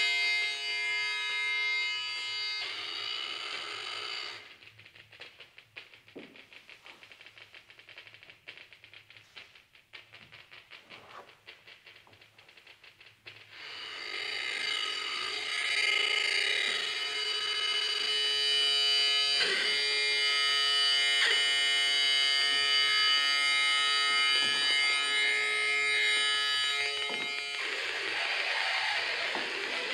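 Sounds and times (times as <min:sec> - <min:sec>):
electronic drone of held tones: 0:00.0 - 0:05.0, 0:13.5 - 0:29.9.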